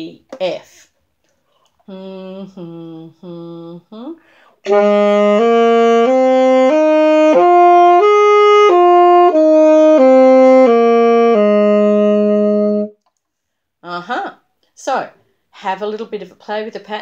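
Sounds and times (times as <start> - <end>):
saxophone playing: 2.0 - 13.0.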